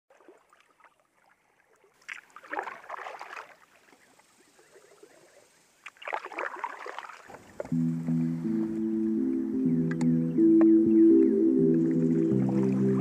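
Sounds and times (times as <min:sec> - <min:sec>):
paddle strokes splashing water: 0:00.1 - 0:08.8, 0:11.7 - 0:13.0.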